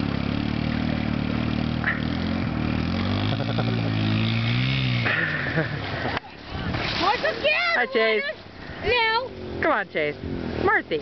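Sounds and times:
dirt bike engine revving: 0.0s - 6.2s, 8.8s - 11.0s.

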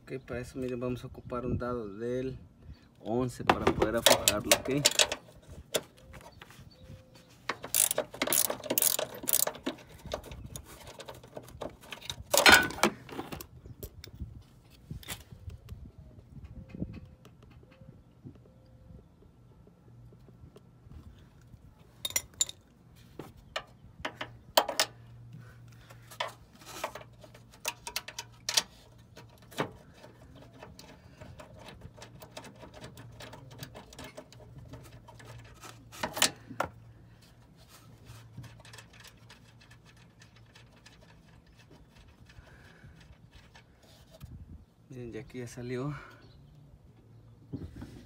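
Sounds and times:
ratchet wrench clicking: 7.6s - 9.9s.

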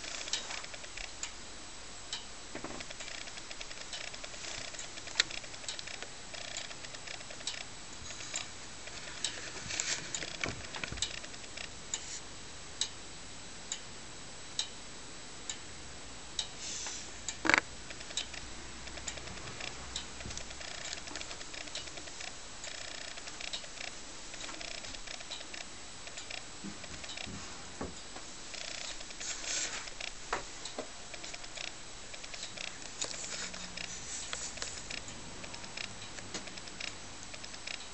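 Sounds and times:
clock ticking: 2.1s - 7.7s, 17.2s - 27.3s, 29.9s - 37.9s.

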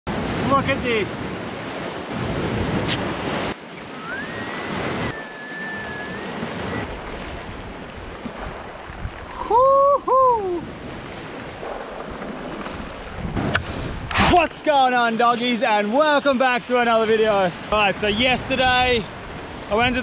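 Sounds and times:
surf washing on rocky shore: 0.1s - 20.0s
wind buffeting microphone: 1.1s - 14.5s
thin whistle-like tone: 3.9s - 6.9s.

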